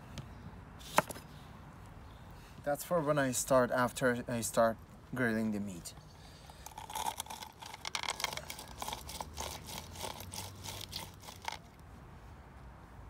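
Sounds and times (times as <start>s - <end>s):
crinkling and crackling clicks: 6.6s - 11.8s.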